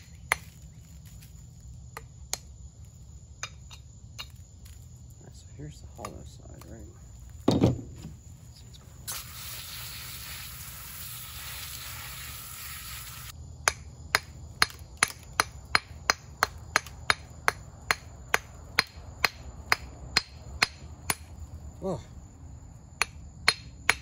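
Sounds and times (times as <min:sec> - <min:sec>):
steady hiss: 0:08.0 - 0:13.4
hammer tapping on stone: 0:13.6 - 0:21.3, 0:23.0 - 0:24.0.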